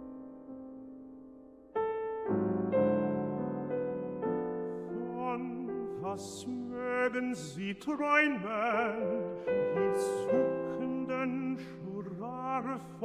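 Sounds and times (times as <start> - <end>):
gentle piano lullaby: 0.0 - 13.0
person singing: 4.9 - 13.0.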